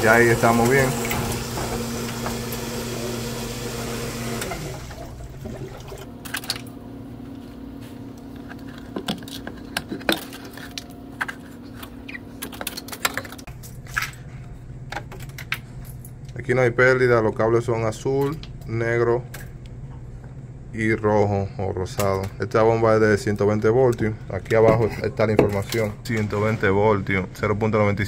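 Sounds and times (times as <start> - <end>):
water flowing: 0.0 - 6.2
ice machine water pump humming: 0.0 - 7.4.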